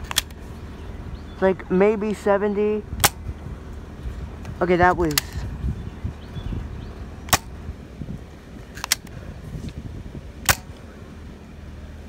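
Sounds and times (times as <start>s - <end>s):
toy dart pistol shots: 10.4s - 10.7s.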